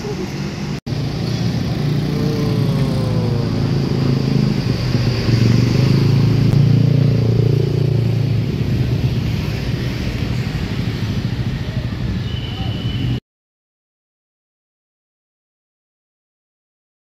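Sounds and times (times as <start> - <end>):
car engine passing: 1.0 - 11.5.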